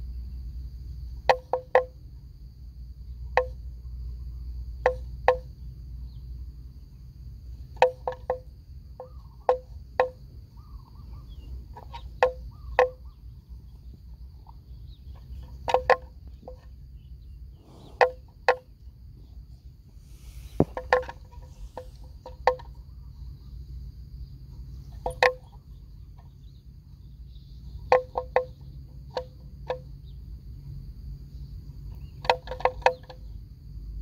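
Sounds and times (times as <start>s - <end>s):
insect drone: 0.0s - 34.0s.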